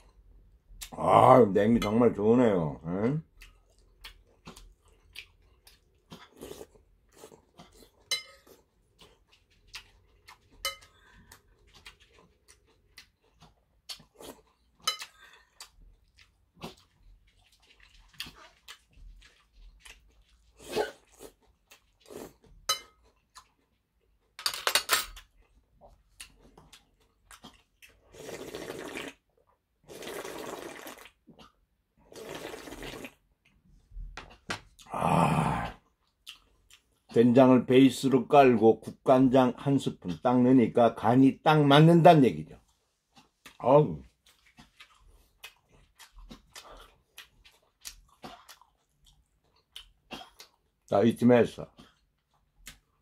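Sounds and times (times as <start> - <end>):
wet chewing: 2.9 - 24.4, 25.1 - 37.2, 42.5 - 50.9, 51.6 - 53.0
soup slurping: 27.9 - 29.2, 29.8 - 33.2.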